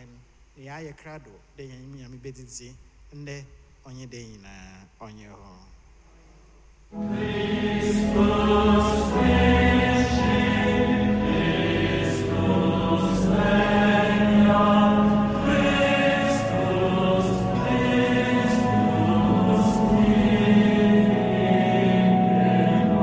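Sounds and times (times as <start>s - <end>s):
slow hymn singing: 6.9s - 23.0s.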